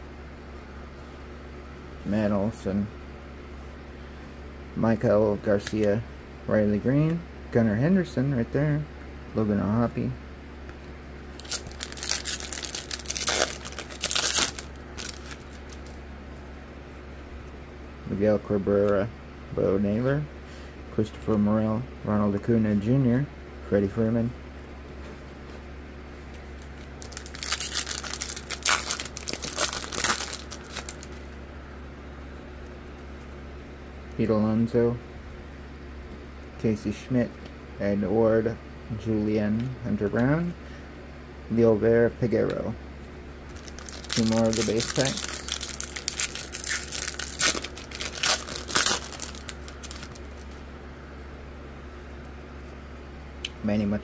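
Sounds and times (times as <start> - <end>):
wrapper crinkling and tearing: 11.4 - 16.0, 26.6 - 31.3, 43.5 - 50.6.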